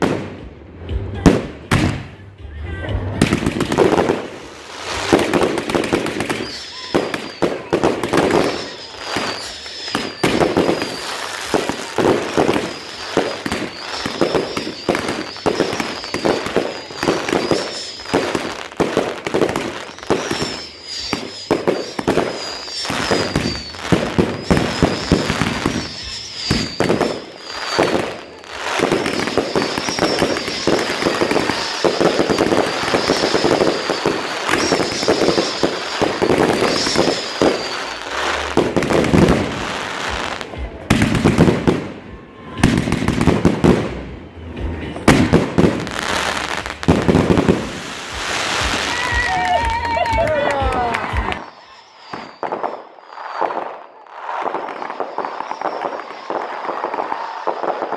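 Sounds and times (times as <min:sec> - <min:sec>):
fireworks bangs and crackling: 0:00.0 - 0:57.9
high wavering tone: 0:04.0 - 0:40.5.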